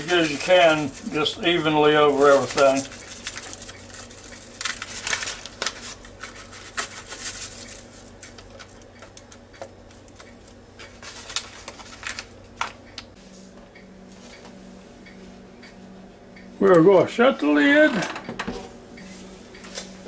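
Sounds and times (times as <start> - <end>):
paper pouch rustling: 2.0 - 8.4, 11.0 - 12.3.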